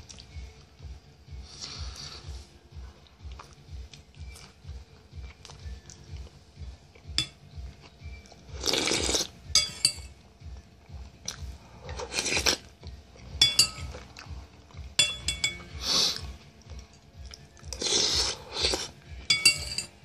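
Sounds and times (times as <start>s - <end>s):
chewing food: 0.0s - 0.6s, 2.9s - 9.4s, 10.5s - 15.0s, 15.9s - 19.3s
metal spoon clinking on bowl: 7.2s - 7.5s, 9.5s - 10.2s, 13.4s - 14.1s, 15.0s - 15.8s, 19.2s - 20.0s.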